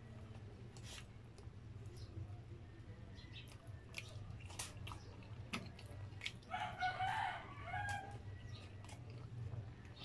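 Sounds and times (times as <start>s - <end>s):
rooster crowing: 6.5s - 8.2s.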